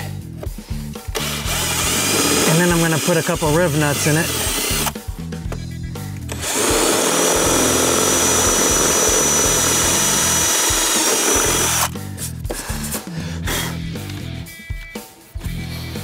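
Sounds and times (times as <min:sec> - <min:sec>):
cordless drill boring plastic: 0:01.1 - 0:05.0, 0:06.3 - 0:12.0.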